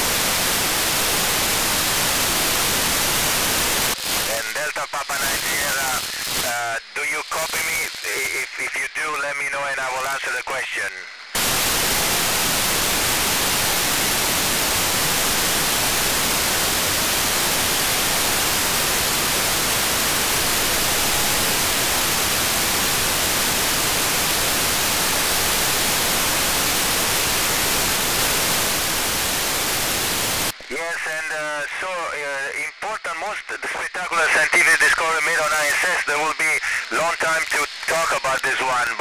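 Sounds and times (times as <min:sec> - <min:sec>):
radio static hiss: 0:00.0 - 0:39.0.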